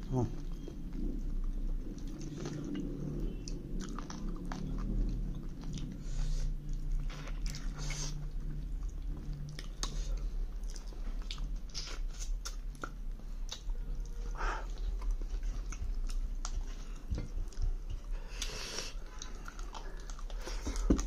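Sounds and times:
low steady hum: 0.0 - 21.0
man chewing food: 0.0 - 21.0
wet mouth clicks and smacks: 8.8 - 13.8.

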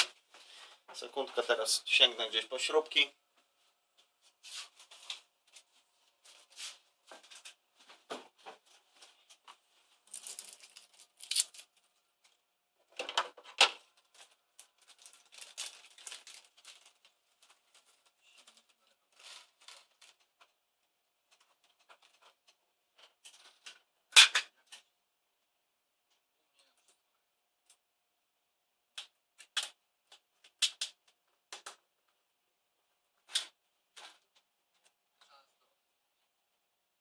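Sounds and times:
rummaging among small parts: 8.5 - 20.5.

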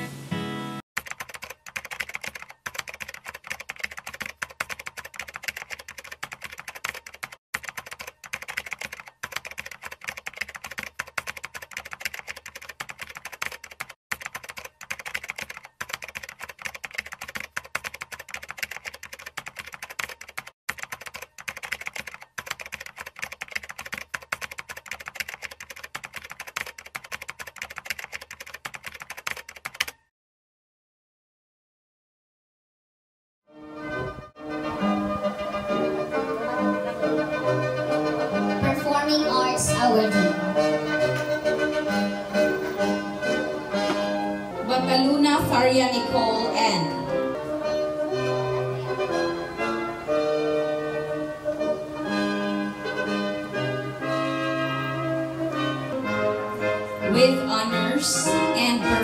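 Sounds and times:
keyboard typing clicks: 1.0 - 30.1.

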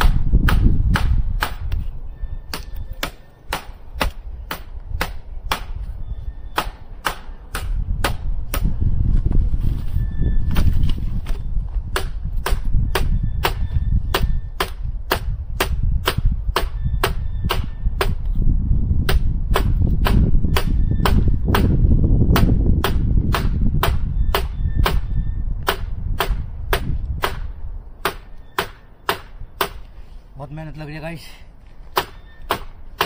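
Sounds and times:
axe chopping firewood: 0.0 - 1.8, 2.5 - 5.8, 6.6 - 8.7, 10.6 - 18.3, 19.0 - 25.0, 25.7 - 29.9, 31.9 - 33.0.

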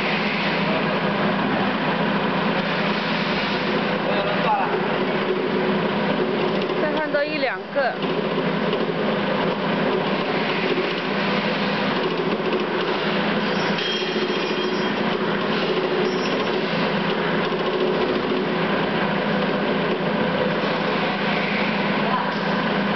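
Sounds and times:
trimming machine running: 0.0 - 22.9.

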